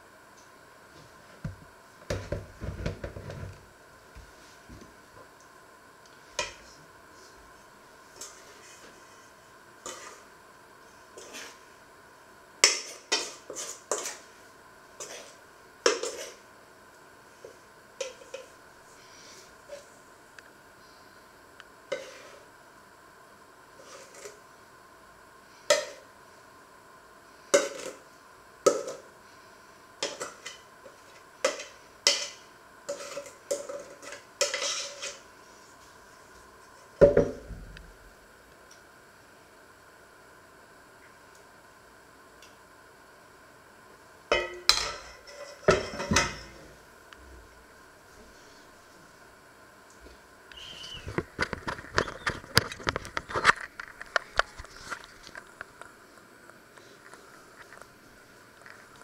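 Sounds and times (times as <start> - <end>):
spoon scraping metal bowl: 9.8 - 10.2, 15.0 - 16.4, 31.5 - 35.2
dishes and utensils clattering: 31.5 - 35.2, 44.4 - 46.6.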